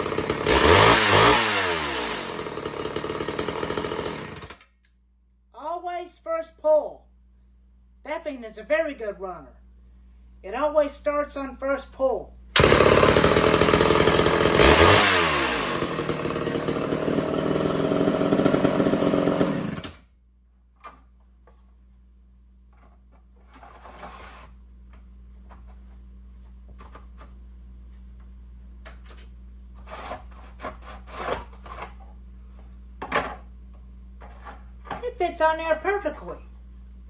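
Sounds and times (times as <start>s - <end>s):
chainsaw running: 0.0s - 4.5s, 12.6s - 20.0s.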